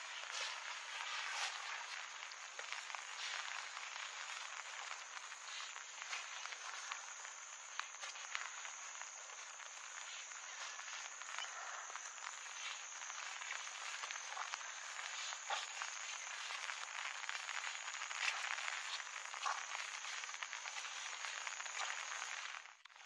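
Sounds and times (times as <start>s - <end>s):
frogs croaking: 0.0s - 23.0s.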